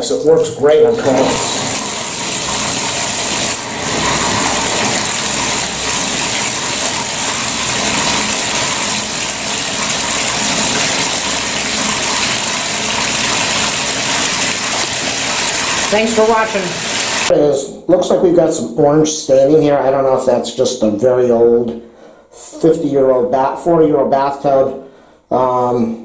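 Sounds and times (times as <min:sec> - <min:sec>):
tap water splashing into tub: 0:00.0 - 0:17.3.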